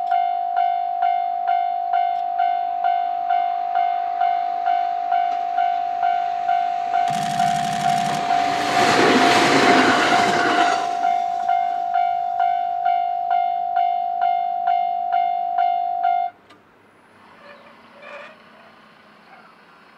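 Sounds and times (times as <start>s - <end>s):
level-crossing warning bell: 0.0s - 16.4s
train wheels rushing past: 4.4s - 12.5s.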